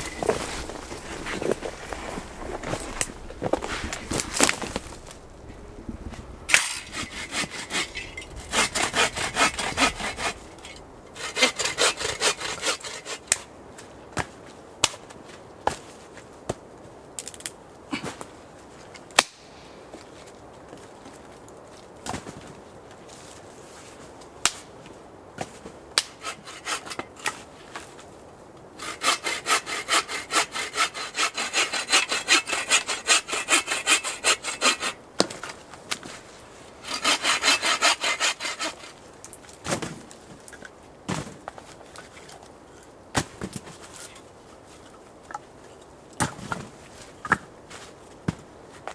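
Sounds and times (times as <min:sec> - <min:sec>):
hand saw cutting branch: 0:00.0 - 0:05.2, 0:06.5 - 0:13.5, 0:26.0 - 0:27.4, 0:28.8 - 0:36.1, 0:36.8 - 0:39.0.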